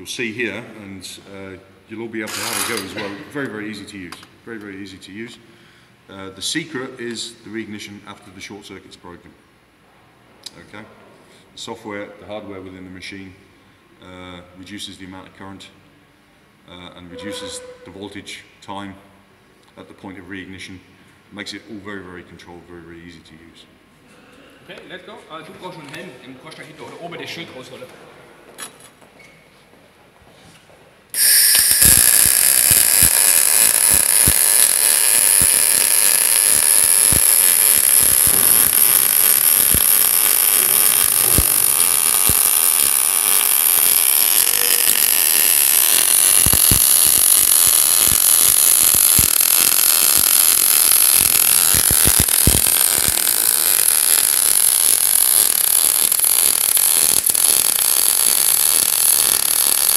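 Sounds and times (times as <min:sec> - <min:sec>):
welding arc hissing and crackling: 0:31.1 - 0:59.9.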